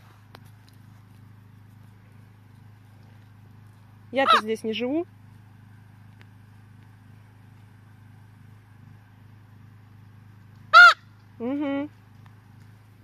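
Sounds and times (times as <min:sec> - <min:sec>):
low mechanical hum: 0:00.0 - 0:13.0
raven call: 0:10.7 - 0:11.1.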